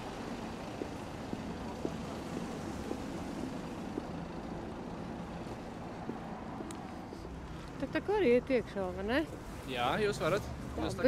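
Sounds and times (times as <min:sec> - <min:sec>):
car driving slowly: 0:00.0 - 0:11.0
footsteps on paving stones: 0:00.1 - 0:07.8.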